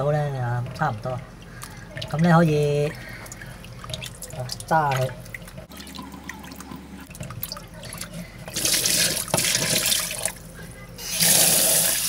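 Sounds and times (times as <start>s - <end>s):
small water splashes: 1.4s - 10.4s
water rushing into a sink: 1.7s - 10.4s, 11.0s - 12.0s.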